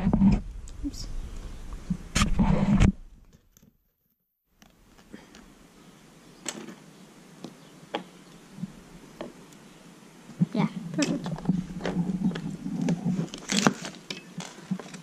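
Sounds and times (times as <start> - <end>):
paper rustling: 11.2 - 15.0.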